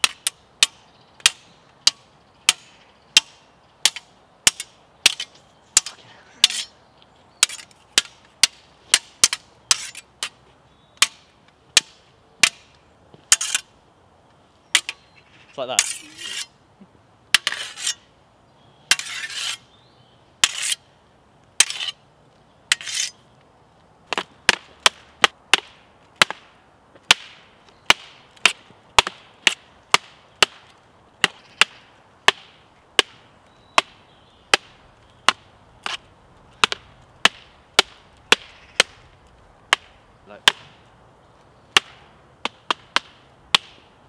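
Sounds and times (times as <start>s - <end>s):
practice swords clashing: 0.0s - 6.8s, 13.3s - 13.7s, 15.7s - 16.5s, 22.7s - 23.2s, 36.6s - 39.0s.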